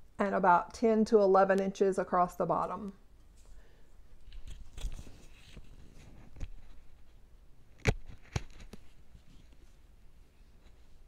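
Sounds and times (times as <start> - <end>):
cloth mask rustling: 3.3 - 11.0.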